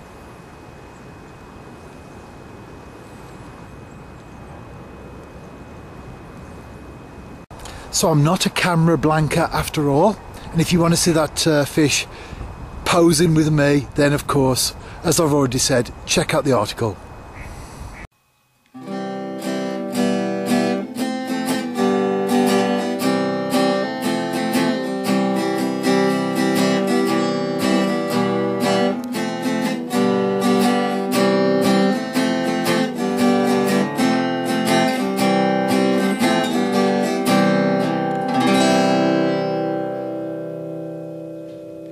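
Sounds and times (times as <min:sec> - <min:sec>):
acoustic guitar chords: 0:18.7 - 0:41.9.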